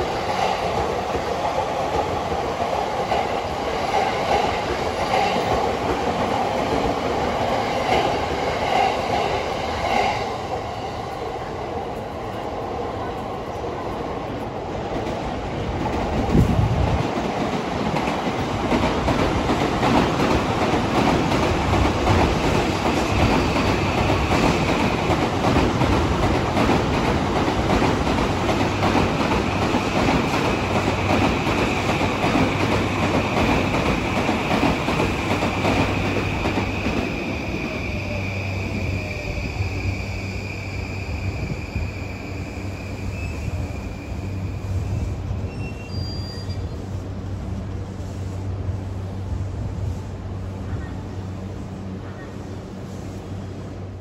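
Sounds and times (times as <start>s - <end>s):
trains rushing past on rails: 0.0s - 54.0s
high-pitched train whine: 33.3s - 47.3s.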